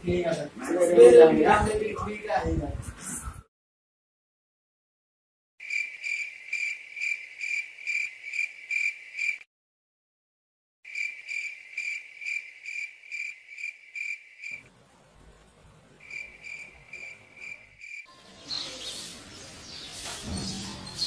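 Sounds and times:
crickets chirping: 5.6s - 9.4s, 10.9s - 14.7s, 16.0s - 18.1s
noisy hissing sound: 14.4s - 21.0s.

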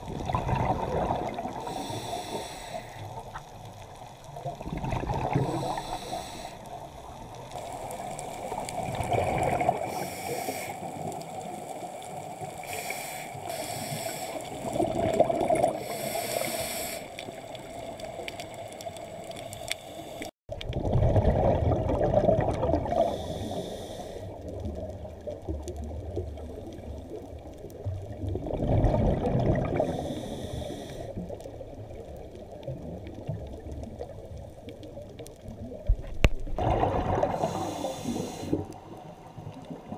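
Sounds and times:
exhaled air bubbling: 0.0s - 39.9s
regulator inhalation hiss: 1.6s - 3.1s, 5.4s - 6.8s, 9.8s - 11.1s, 12.5s - 14.7s, 15.7s - 20.3s, 23.0s - 24.4s, 29.8s - 31.2s, 37.4s - 38.7s.

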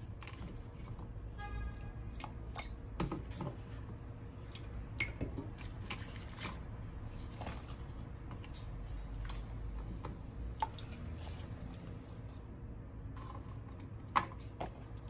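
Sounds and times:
low steady hum: 0.0s - 15.0s
small water splashes: 10.4s - 12.2s.

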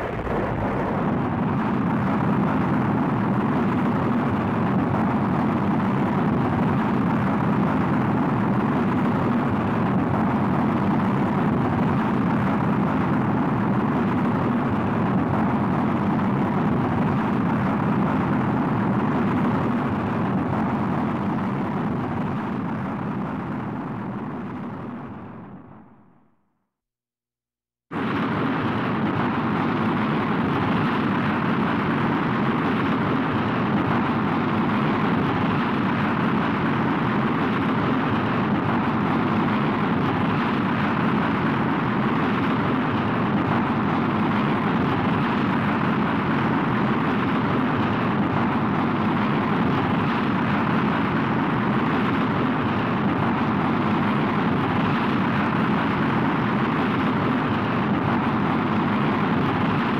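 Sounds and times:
rocket engine rumble: 0.0s - 26.3s, 27.9s - 59.9s.

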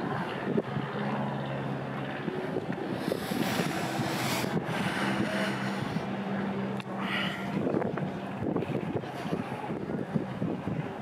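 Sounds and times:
low mechanical hum: 0.0s - 11.0s
wind on microphone: 0.0s - 11.0s.

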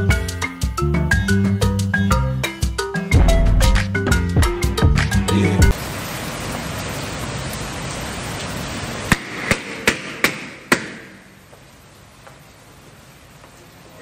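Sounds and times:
upbeat music: 0.0s - 5.7s
background hiss: 5.7s - 14.0s.

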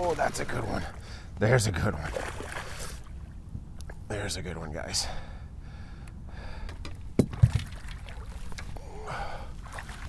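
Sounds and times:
wind and water rumble: 0.0s - 10.0s
sharp knocks on boat: 7.2s - 7.8s.

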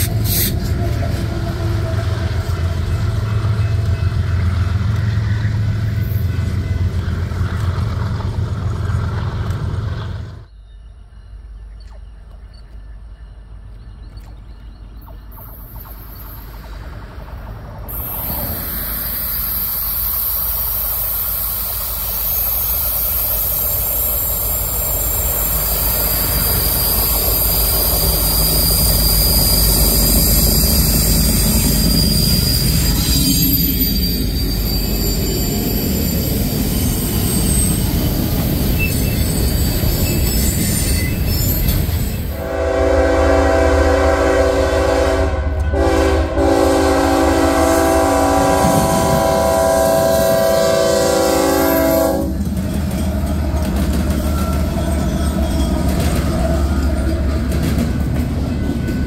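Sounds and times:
train wheels on rails: 0.0s - 10.6s, 11.8s - 59.0s
diesel locomotive engine rumble: 0.0s - 59.0s
locomotive horn chord: 42.4s - 52.4s.

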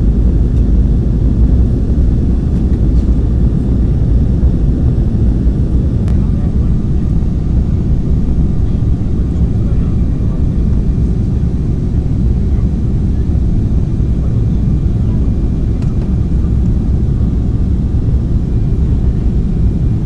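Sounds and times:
jet airliner cabin rumble: 0.0s - 20.0s.

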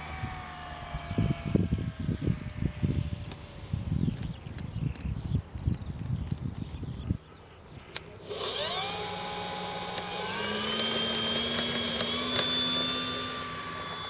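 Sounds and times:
electric motor propeller whining: 0.0s - 4.6s, 7.8s - 14.0s.

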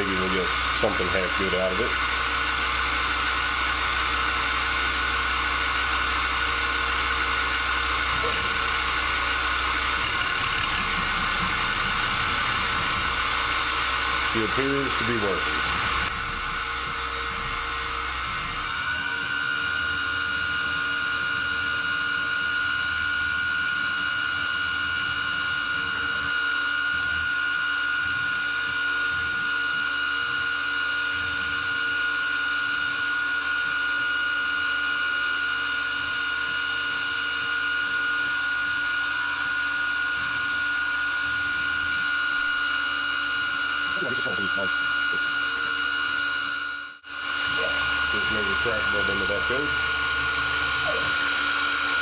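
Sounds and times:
end mill cutting wood: 0.0s - 52.0s
milling machine motor whine: 0.0s - 52.0s.

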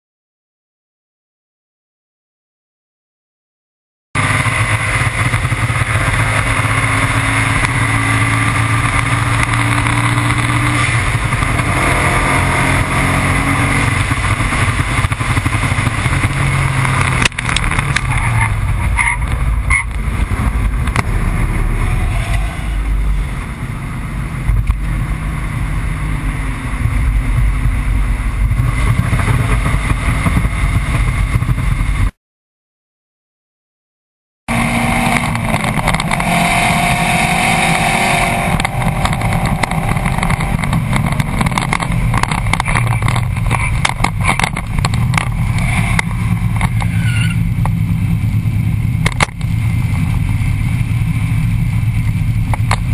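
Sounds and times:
heavy wind noise: 4.2s - 32.1s, 34.5s - 52.9s
car engine at full throttle: 4.2s - 32.2s, 34.5s - 52.9s
sharp crack: 13.8s - 22.5s, 48.9s - 50.0s.

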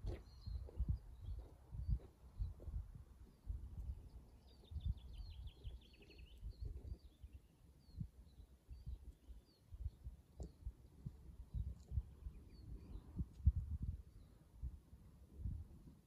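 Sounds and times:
bird chirps: 0.0s - 14.5s
songbird trilling: 4.3s - 10.7s.

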